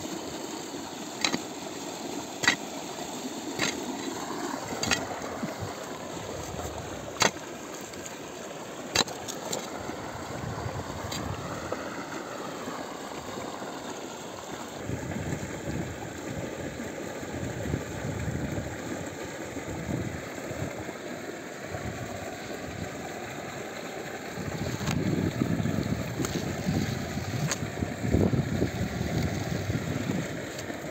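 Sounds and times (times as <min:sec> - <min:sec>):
digging stick knocking clay soil: 0:01.2 - 0:01.5, 0:02.4 - 0:02.6, 0:03.6 - 0:05.6, 0:06.3 - 0:08.2, 0:08.9 - 0:09.7
wind on microphone: 0:09.7 - 0:11.8, 0:14.8 - 0:16.5, 0:24.4 - 0:30.5.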